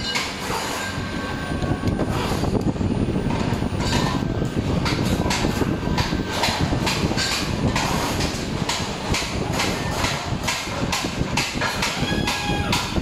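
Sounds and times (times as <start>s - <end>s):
workshop rumble: 0.0s - 13.0s
metallic clatter: 3.3s - 11.9s.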